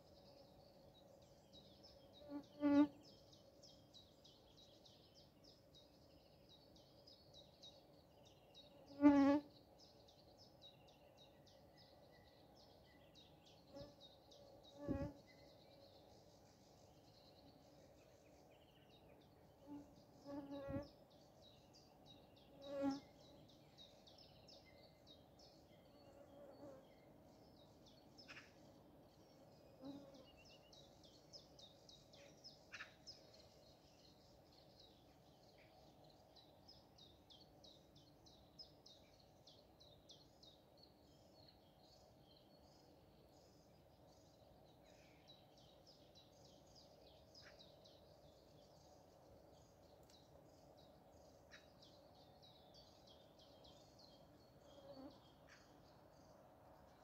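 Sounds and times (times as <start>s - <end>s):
flying insect buzzing: 14.8s - 15.2s.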